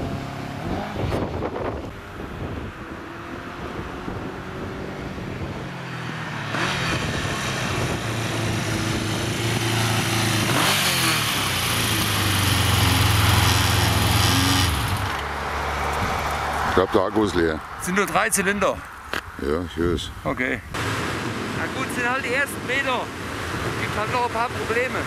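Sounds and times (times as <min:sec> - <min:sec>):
motorcycle engine passing by: 0:00.0 - 0:17.0.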